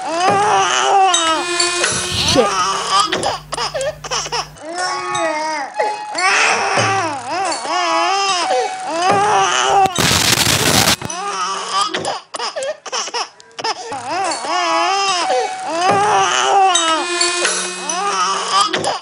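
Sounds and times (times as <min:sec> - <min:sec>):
loud burst of noise: 0:01.2 - 0:04.6, 0:09.9 - 0:11.1
low hum: 0:01.2 - 0:04.6
baby babbling and wailing: 0:01.3 - 0:05.7.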